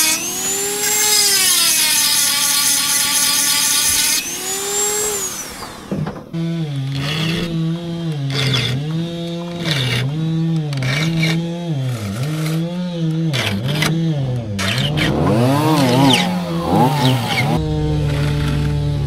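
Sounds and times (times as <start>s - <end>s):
chainsaws cutting logs: 0.0s - 19.0s.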